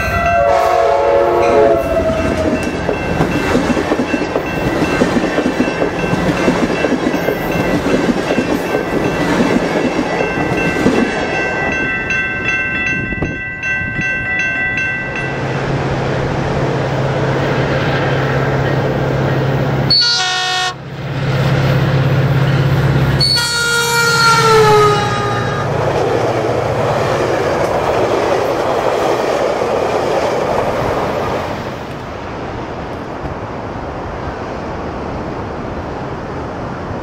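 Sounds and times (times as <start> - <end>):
train horn blowing: 0.0 - 2.7, 19.9 - 20.9, 23.2 - 25.9
passing train rumble: 0.0 - 37.0.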